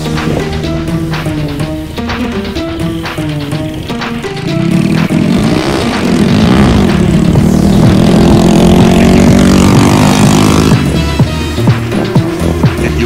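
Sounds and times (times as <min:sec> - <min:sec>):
music with a steady beat: 0:00.0 - 0:13.0
go-kart engine revving: 0:03.4 - 0:13.0.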